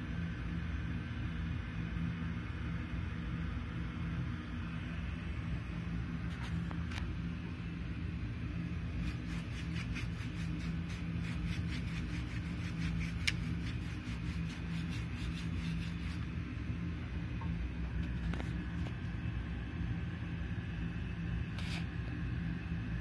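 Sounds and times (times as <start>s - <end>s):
low machine hum: 0.0s - 23.0s
rapid small clicks: 9.0s - 16.0s.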